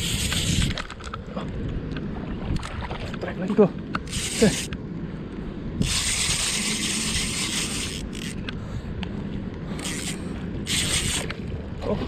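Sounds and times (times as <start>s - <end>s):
fishing reel clicking and whirring: 0.0s - 0.9s, 4.0s - 4.8s, 5.8s - 8.6s, 9.7s - 11.4s.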